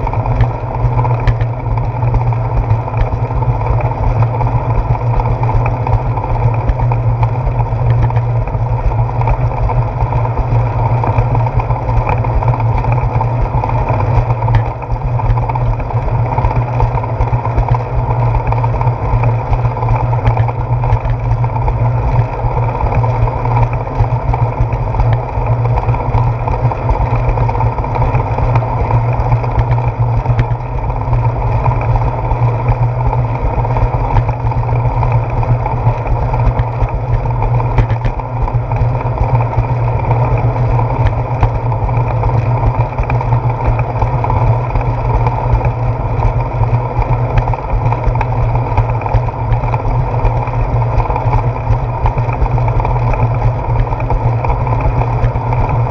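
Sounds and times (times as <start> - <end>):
bicycle tyres on concrete: 0.0 - 55.9
wind rumble: 0.0 - 55.9.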